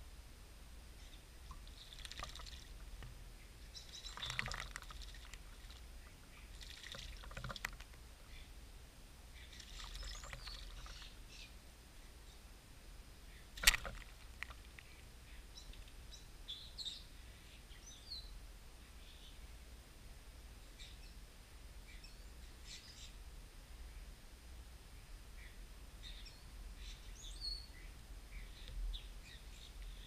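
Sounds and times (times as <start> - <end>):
faint bird chirps: 1.0 - 8.6, 9.3 - 12.5, 13.2 - 19.6, 20.6 - 21.2, 21.8 - 23.2, 24.9 - 30.0
bird splashing water: 1.4 - 3.1, 3.8 - 8.3, 9.4 - 11.2, 13.6 - 14.8.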